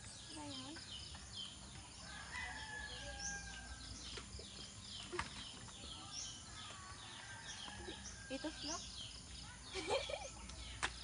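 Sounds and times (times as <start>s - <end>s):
small birds chirping: 0.0s - 11.0s
rooster crowing: 2.0s - 3.8s.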